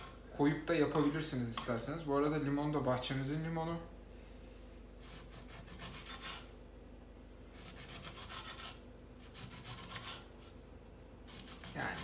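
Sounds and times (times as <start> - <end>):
knife cutting on wooden board: 5.0 - 6.5, 7.6 - 10.6, 11.3 - 12.0.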